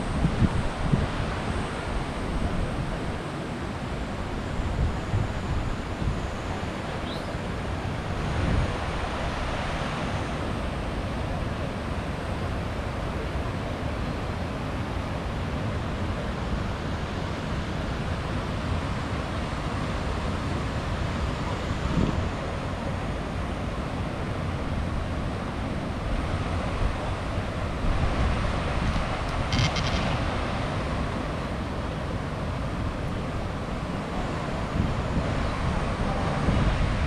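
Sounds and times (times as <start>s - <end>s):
wind buffeting microphone: 0.0s - 3.2s, 21.7s - 22.5s
mountain stream rushing: 0.0s - 37.0s.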